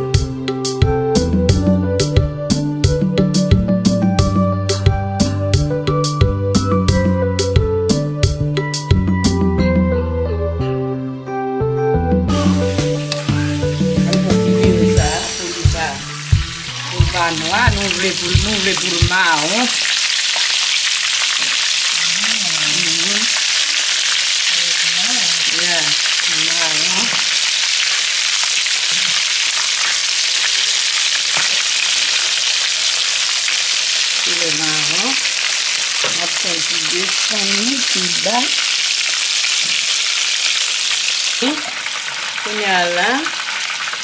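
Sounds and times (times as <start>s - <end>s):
chicken deep-frying in oil: 12.3s - 44.0s.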